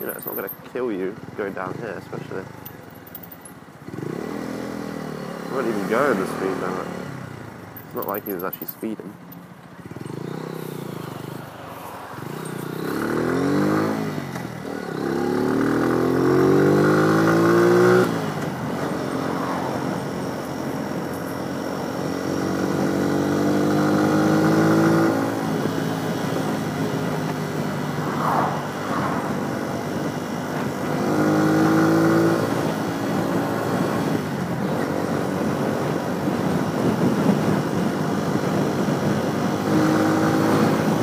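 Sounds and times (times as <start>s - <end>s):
motorcycle engine accelerating: 2.5s - 8.2s, 9.8s - 41.0s
wind rush on microphone: 25.5s - 31.1s, 32.7s - 41.0s.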